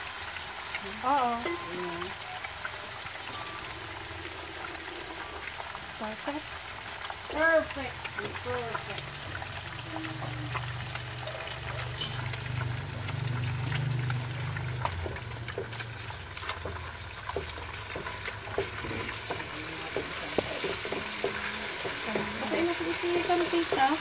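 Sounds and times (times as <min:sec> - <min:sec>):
coconut milk frying and bubbling: 0:00.0 - 0:24.0
wooden spatula stirring: 0:14.0 - 0:24.0.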